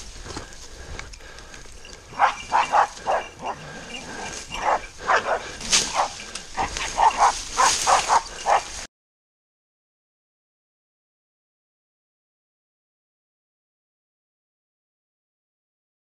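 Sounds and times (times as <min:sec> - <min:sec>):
dog barking: 0:02.1 - 0:08.9.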